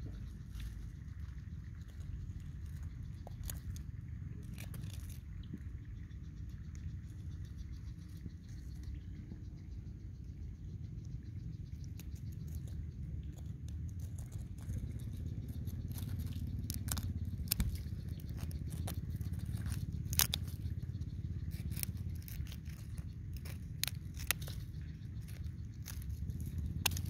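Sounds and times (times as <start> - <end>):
stick scraping in dry soil: 0.0 - 9.1, 11.6 - 27.0
steady low rumble: 0.0 - 27.0.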